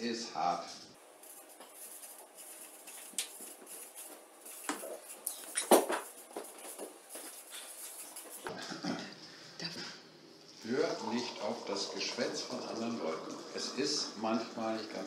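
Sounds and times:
marker squeaking on paper: 0:01.7 - 0:08.5.

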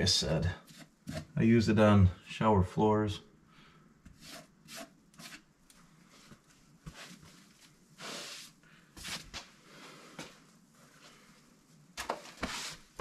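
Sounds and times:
rustling and scuffing: 0:04.1 - 0:11.3, 0:11.9 - 0:13.0.

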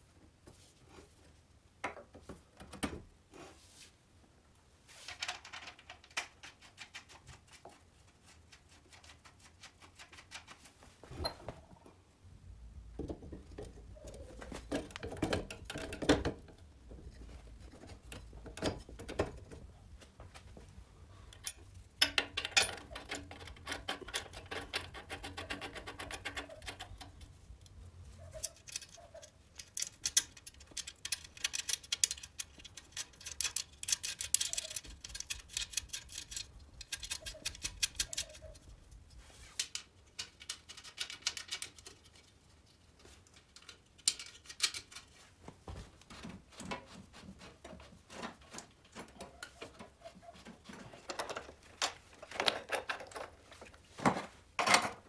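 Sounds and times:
metal clicks of bolts tightening: 0:21.3 - 0:27.3, 0:28.4 - 0:29.0.

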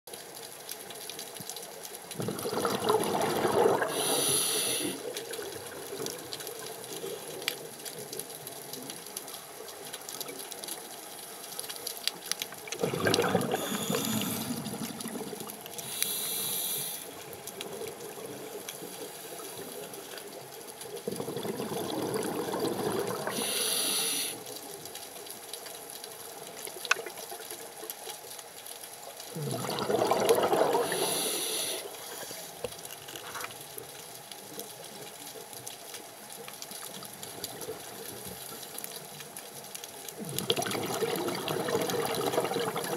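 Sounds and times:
diver exhaling bubbles: 0:02.2 - 0:05.0, 0:12.7 - 0:16.9, 0:21.0 - 0:24.2, 0:29.3 - 0:31.9, 0:40.2 - 0:42.9
regulator inhale hiss: 0:03.8 - 0:05.1, 0:13.6 - 0:14.8, 0:15.8 - 0:17.2, 0:23.3 - 0:24.5, 0:30.8 - 0:32.7.

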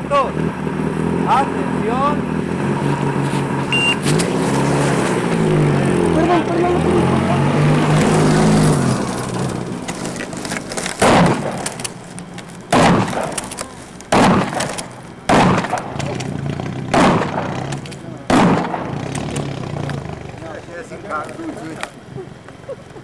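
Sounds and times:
jeep engine running: 0:00.0 - 0:23.0
shotgun shots: 0:11.0 - 0:12.0, 0:12.7 - 0:19.5.

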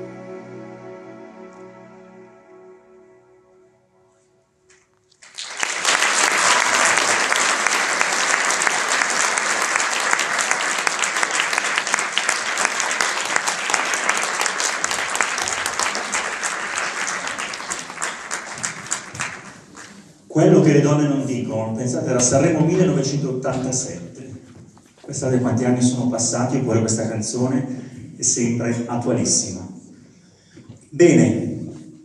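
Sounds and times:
soft music: 0:00.0 - 0:05.2
audience applause: 0:05.2 - 0:20.3.

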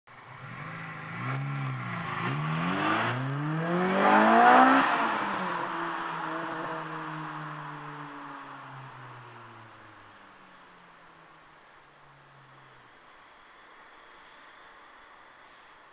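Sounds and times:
car engine accelerating past: 0:00.2 - 0:09.7.

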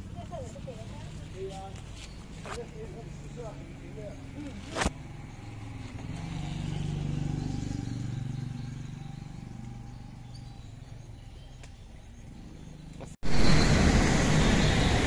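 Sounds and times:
vehicle engine passing by: 0:03.4 - 0:11.5, 0:12.2 - 0:15.0.

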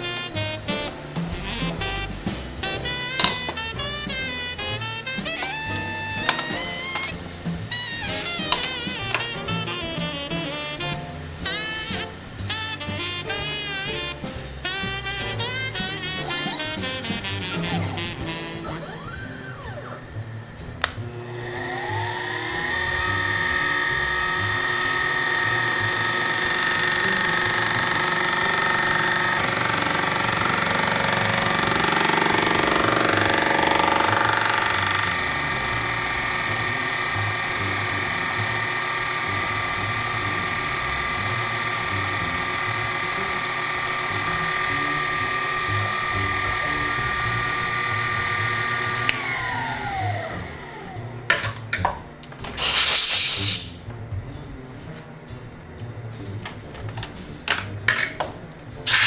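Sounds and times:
milling machine motor whine: 0:02.6 - 0:10.9, 0:15.4 - 0:51.3
fly cutter cutting metal: 0:02.6 - 0:12.1, 0:20.8 - 0:51.0, 0:52.6 - 0:53.8.

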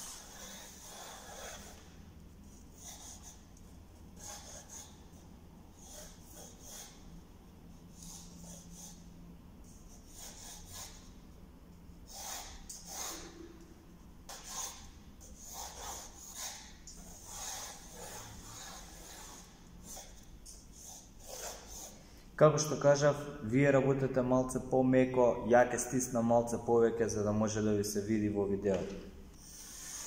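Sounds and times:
pencil drawing on paper: 0:00.0 - 0:11.3, 0:12.0 - 0:13.5, 0:14.3 - 0:22.0, 0:29.4 - 0:30.0
low room hum: 0:00.0 - 0:30.0.

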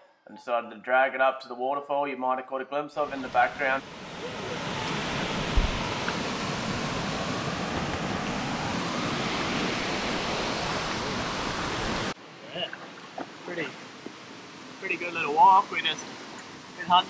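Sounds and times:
waterfall and creek rushing: 0:03.0 - 0:17.0
brief low thump: 0:05.5 - 0:05.8.

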